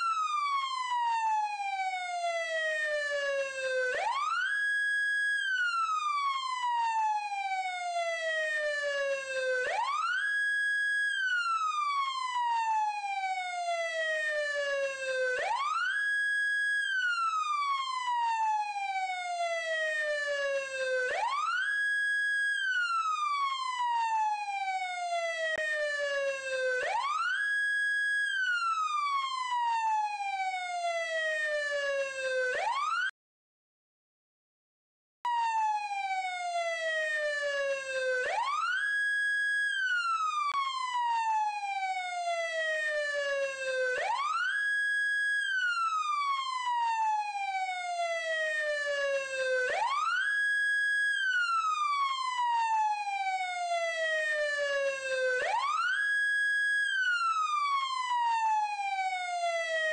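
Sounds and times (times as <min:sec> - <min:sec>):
siren wailing: 0:00.0 - 0:33.1, 0:35.3 - 0:59.9.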